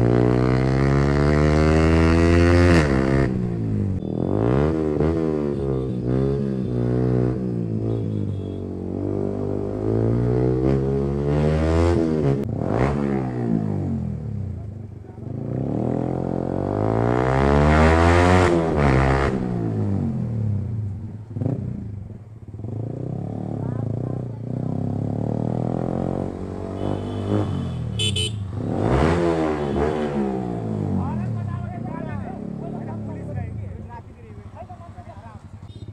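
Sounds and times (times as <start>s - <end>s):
motorcycle engine accelerating: 0.0s - 8.0s, 8.9s - 34.0s
horn beeps: 4.0s - 7.2s, 26.6s - 28.6s
motorcycle engine running: 19.3s - 28.9s.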